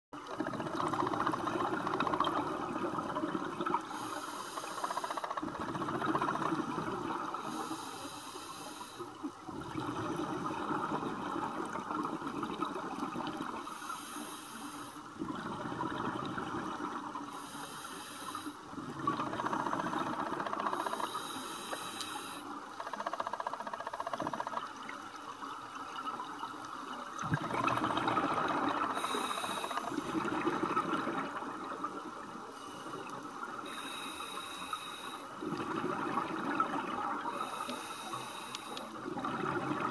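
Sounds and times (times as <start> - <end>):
exhaled bubbles gurgling: 0.2 - 7.9, 9.2 - 14.1, 15.1 - 17.8, 18.5 - 39.9
scuba regulator inhalation hiss: 3.8 - 5.4, 7.4 - 9.2, 13.6 - 15.2, 17.2 - 18.7, 20.7 - 22.7, 28.5 - 30.4, 33.6 - 35.4, 37.2 - 39.0.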